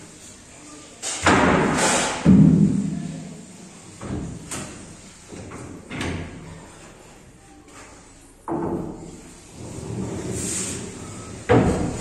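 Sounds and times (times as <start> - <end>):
sliding scrapes: 9.1 - 12.0.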